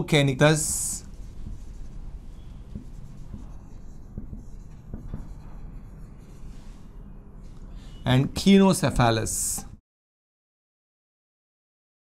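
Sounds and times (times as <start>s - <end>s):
marker scratching on whiteboard: 0.4s - 7.6s.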